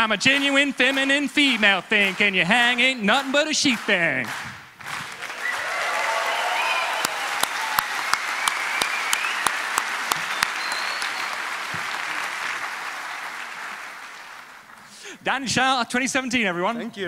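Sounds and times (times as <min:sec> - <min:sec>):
large audience applauding: 0:00.0 - 0:15.0
sharp close rhythmic claps: 0:00.0 - 0:15.0.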